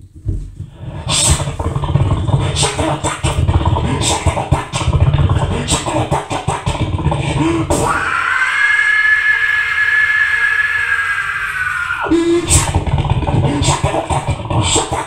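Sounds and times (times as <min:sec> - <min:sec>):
mouth clicks: 0:00.7 - 0:08.1, 0:12.0 - 0:15.0
man growling and grunting: 0:00.8 - 0:08.2, 0:12.0 - 0:15.0
man screaming high pitch: 0:07.8 - 0:12.7.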